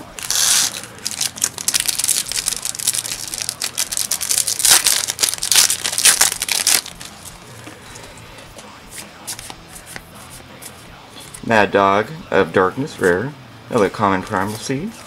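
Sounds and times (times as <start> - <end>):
foil wrapper crinkling: 0.0 - 7.2.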